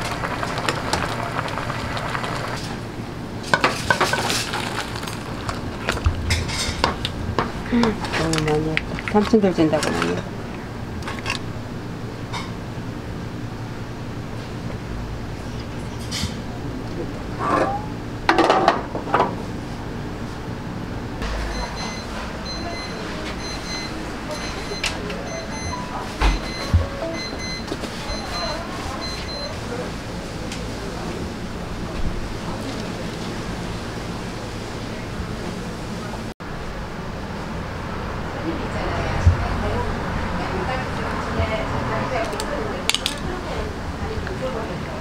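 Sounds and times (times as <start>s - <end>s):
noodles and broth pouring into bowl: 4.2s - 6.0s.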